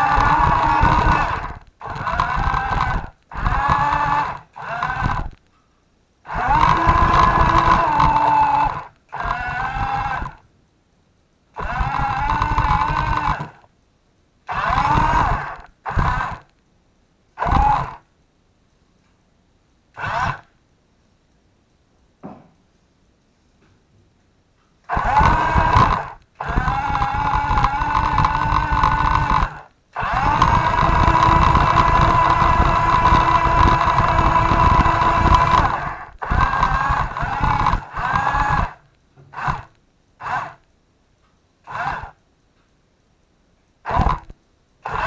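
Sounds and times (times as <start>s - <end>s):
toy truck motor whining: 0.0s - 5.4s, 6.3s - 10.4s, 11.6s - 13.7s, 14.5s - 16.5s, 17.4s - 18.1s, 20.0s - 20.5s, 24.9s - 40.7s, 41.6s - 42.2s, 43.8s - 45.0s.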